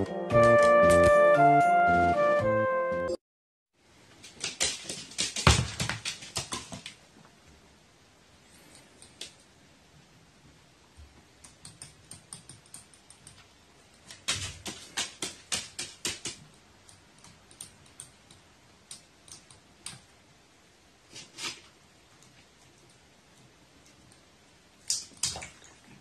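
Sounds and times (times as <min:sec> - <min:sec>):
bird claws clicking on wooden floor: 0:14.1 - 0:16.4.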